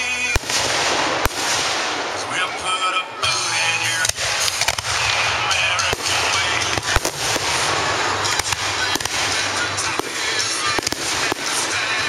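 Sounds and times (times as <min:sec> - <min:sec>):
firework shells bursting: 0:04.0 - 0:12.0
fireworks crackling hiss: 0:04.1 - 0:12.0.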